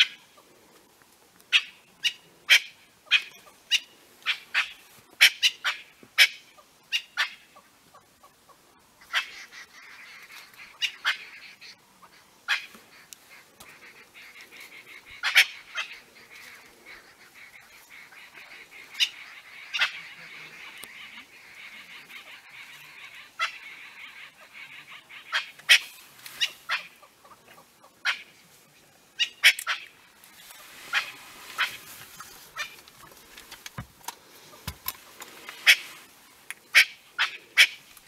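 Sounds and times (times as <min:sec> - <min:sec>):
bird alarm calls: 0:09.0 - 0:27.4, 0:30.6 - 0:31.9.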